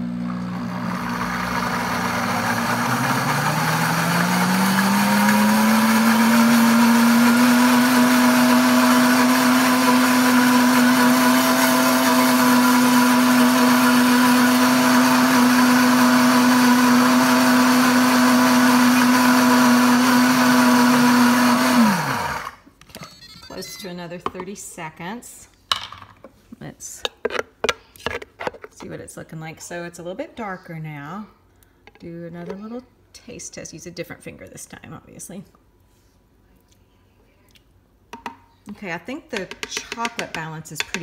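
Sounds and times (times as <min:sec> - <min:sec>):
blender motor running: 0:00.0 - 0:22.6.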